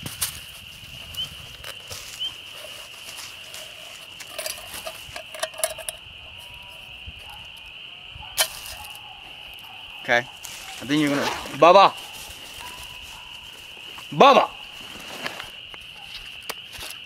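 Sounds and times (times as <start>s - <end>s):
metal cup clinking and rattling: 3.6s - 6.5s.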